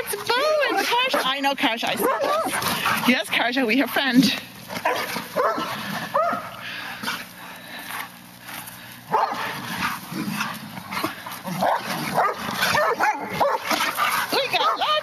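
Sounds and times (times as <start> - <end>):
dogs barking and yipping: 0.0 - 3.5, 4.6 - 7.4, 9.1 - 15.0.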